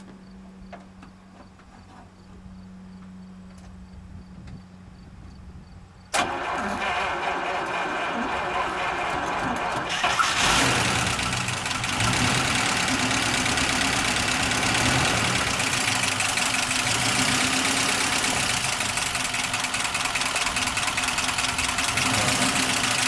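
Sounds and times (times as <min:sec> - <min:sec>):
car engine idling: 0:06.2 - 0:23.0
engine revving: 0:06.2 - 0:23.0.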